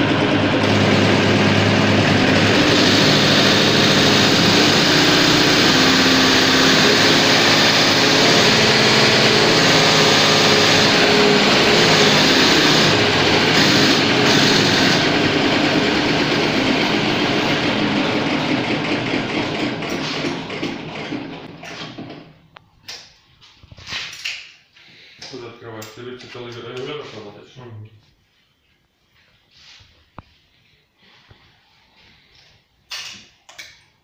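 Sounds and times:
injection pump test bench running: 0.0s - 21.6s.

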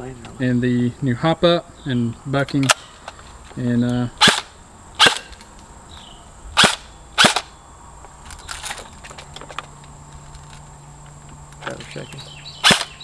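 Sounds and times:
airsoft rifle shots: 4.2s - 5.4s, 6.6s - 7.5s, 12.6s - 13.0s.

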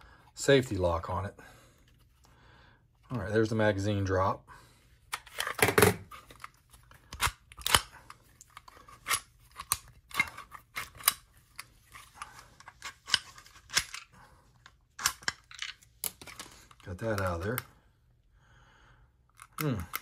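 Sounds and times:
pistol magazine release clicks: 7.1s - 8.0s.

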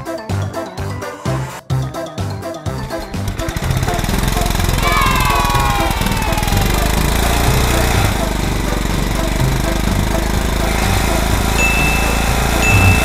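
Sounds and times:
toy mower engine sound effect: 2.8s - 13.0s
high beep: 11.6s - 13.0s.

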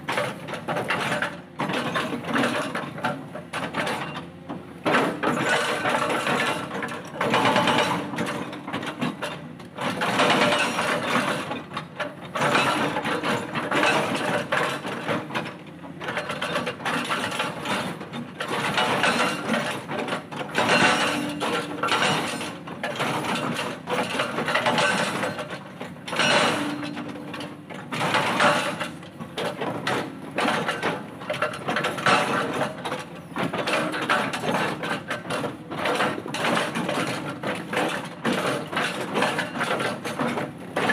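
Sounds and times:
excavator engine running: 0.0s - 40.9s
hydraulic breaker hammering rock: 0.0s - 40.9s.

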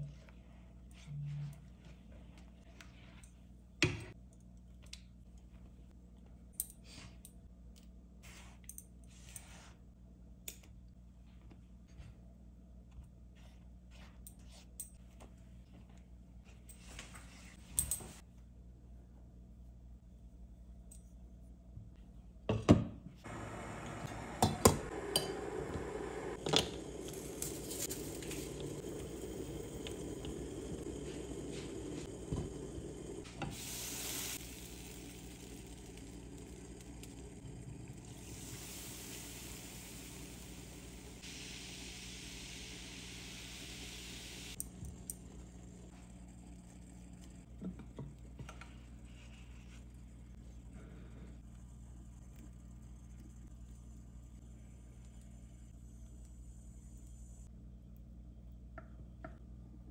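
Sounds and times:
saucepan hissing: 23.3s - 44.6s.

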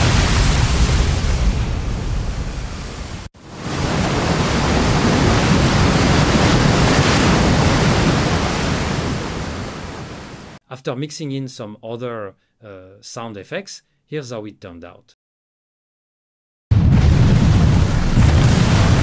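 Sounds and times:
water crashing and splashing: 0.0s - 10.6s, 16.7s - 19.0s.

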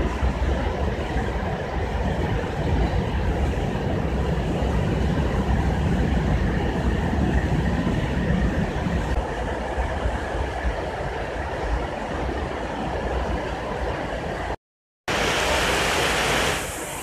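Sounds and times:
train wheels rumbling on rails: 0.0s - 14.5s.

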